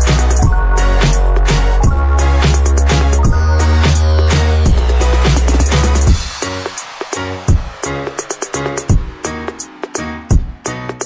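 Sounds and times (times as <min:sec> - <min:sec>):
deep sustained bass: 0:00.0 - 0:06.4
electronic music: 0:00.0 - 0:11.0
steady drum beat: 0:00.0 - 0:11.0.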